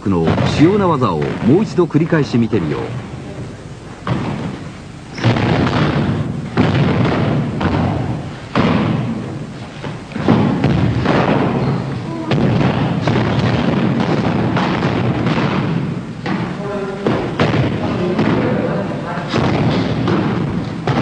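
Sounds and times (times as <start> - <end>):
foot stamps on wooden floor: 4.0 - 18.6.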